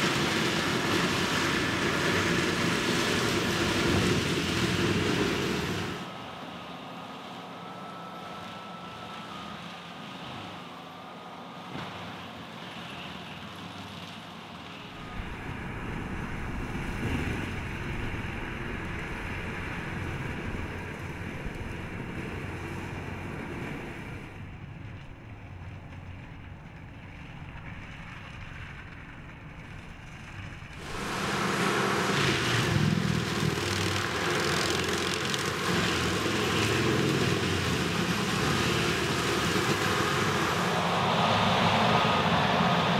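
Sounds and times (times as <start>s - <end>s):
mulcher grinding brush: 0.0s - 6.1s, 30.8s - 41.1s
diesel tractor engine: 0.0s - 42.9s.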